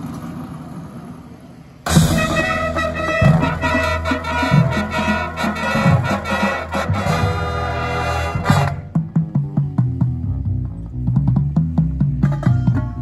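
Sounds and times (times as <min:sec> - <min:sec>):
marching band brass chord: 0:01.9 - 0:09.3
short percussion strikes: 0:01.9 - 0:10.1
drum hits: 0:01.9 - 0:13.0.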